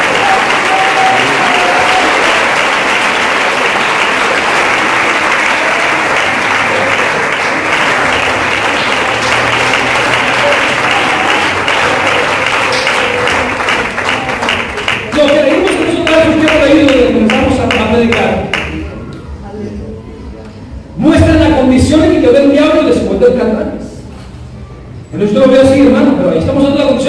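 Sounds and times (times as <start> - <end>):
congregation applauding: 0.0 - 18.9.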